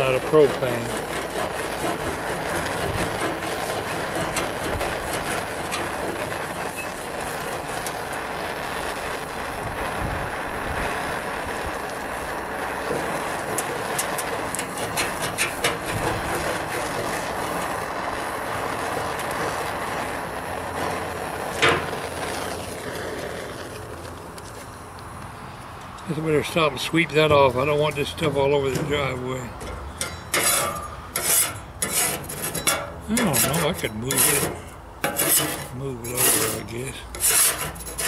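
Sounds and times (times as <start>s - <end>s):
scraper scratching paint: 0.0s - 8.0s, 12.8s - 19.8s, 30.3s - 38.0s
torch flame hissing: 0.0s - 38.0s
metal tool clanking on steel: 28.7s - 36.6s.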